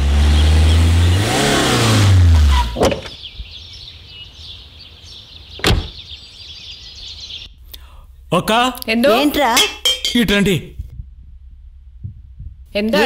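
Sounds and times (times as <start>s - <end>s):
car engine running: 0.0s - 3.2s, 10.8s - 13.0s
car door thud: 2.8s - 3.2s, 5.6s - 6.0s.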